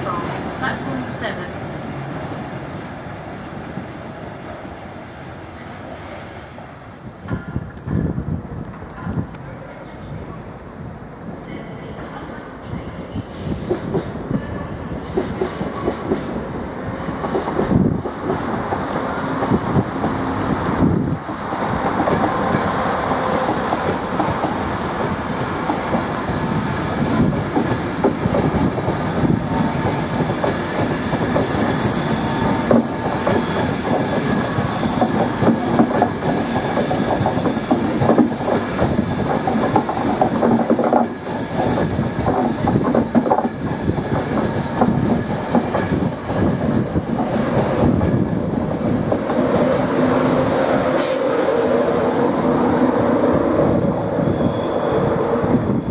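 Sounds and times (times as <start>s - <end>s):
train rumbling: 0.0s - 55.9s
train wheels clacking over rail joints: 23.4s - 49.9s
high squeal: 53.8s - 55.3s.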